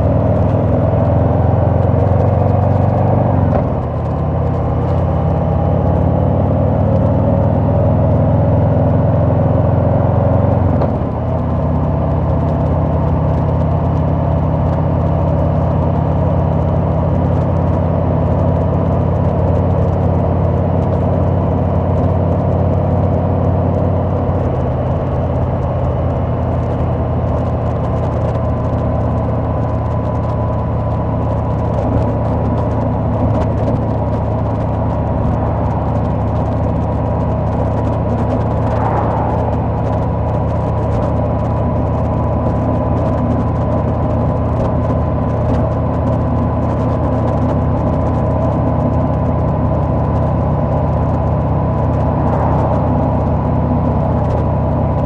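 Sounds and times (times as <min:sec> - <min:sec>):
motorcycle engine running: 0:00.0 - 0:55.0
road noise: 0:00.0 - 0:55.0
wind noise: 0:24.1 - 0:55.0.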